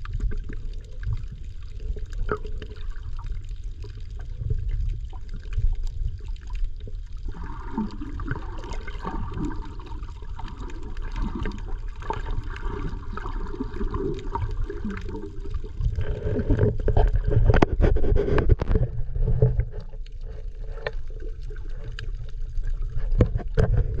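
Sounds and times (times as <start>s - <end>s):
low underwater rumble: 0.0s - 24.0s
water sloshing and gurgling: 0.0s - 24.0s
underwater clicks: 10.4s - 24.0s.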